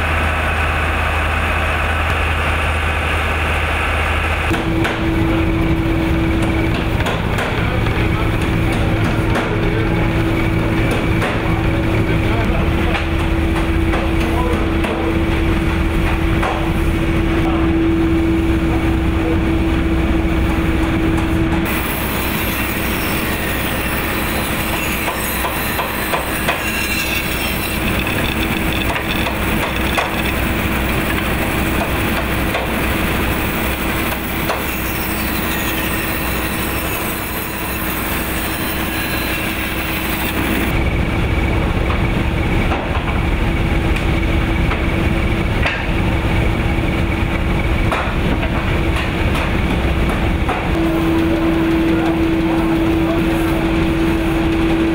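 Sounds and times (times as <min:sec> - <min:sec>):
line shaft machinery drone: 0:00.0 - 0:54.9
bandsaw cutting wood: 0:21.7 - 0:40.8.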